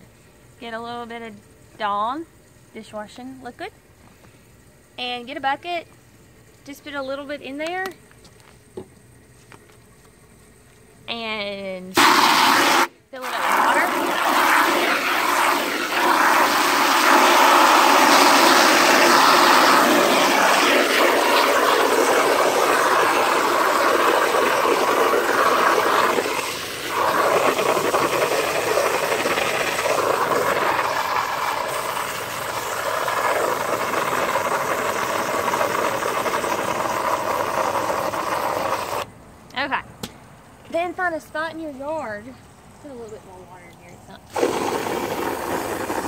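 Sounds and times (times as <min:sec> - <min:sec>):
hose water spraying into bucket: 0:11.9 - 0:39.1, 0:44.3 - 0:46.0.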